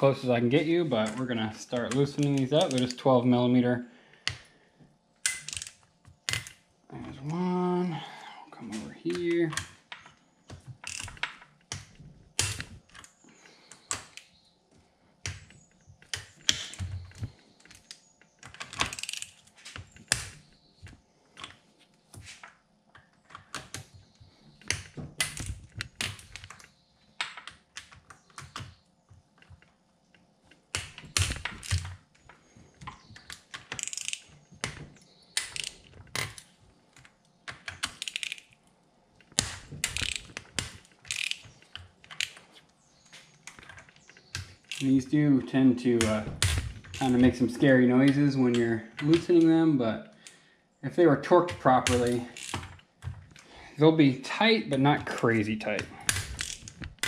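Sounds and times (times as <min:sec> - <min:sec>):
ratchet wrench clicking: 0:33.8 - 0:34.2, 0:38.0 - 0:38.5, 0:39.9 - 0:40.3, 0:41.1 - 0:41.4, 0:52.3 - 0:52.6.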